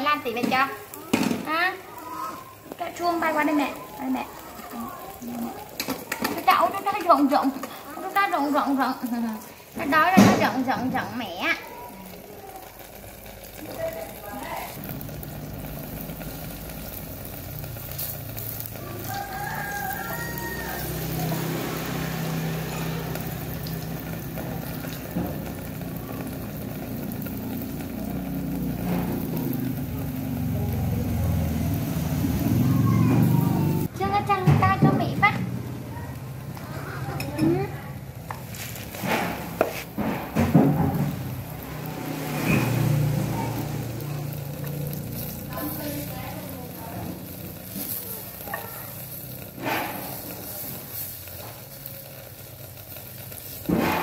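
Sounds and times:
batter sizzling in frying pan: 0.0 - 54.0
rooster crowing: 18.7 - 22.5
low engine-like hum: 19.8 - 33.9.

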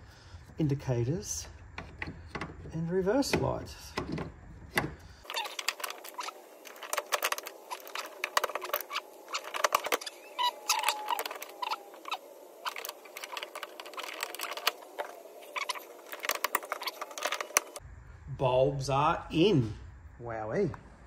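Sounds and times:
short squeak: 8.8 - 13.3.

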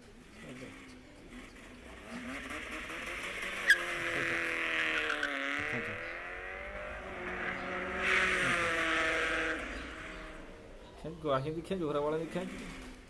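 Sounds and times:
wavering engine-like drone: 1.9 - 10.8.

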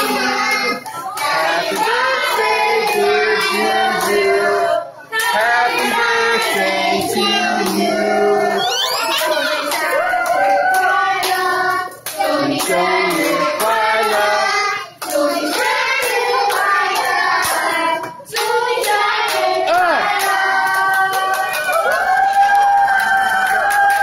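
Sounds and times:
children singing together: 0.0 - 21.0
hand clapping: 15.0 - 24.0.

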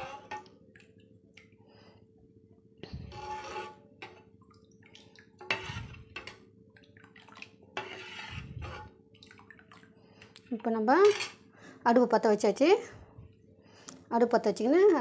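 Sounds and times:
ladle sloshing batter in bowl: 2.9 - 11.4.

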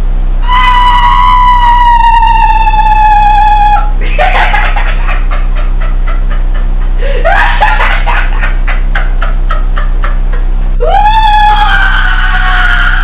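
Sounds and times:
voice laughing: 2.4 - 11.6.

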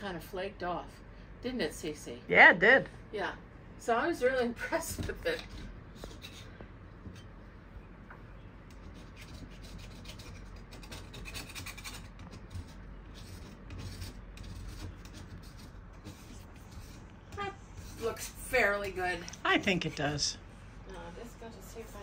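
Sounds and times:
scraper scratching wallpaper: 8.7 - 20.2.

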